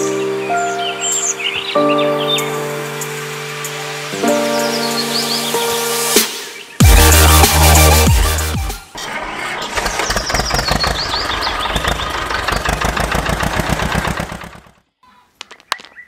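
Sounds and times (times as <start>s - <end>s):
tractor engine running: 9.0s - 14.8s.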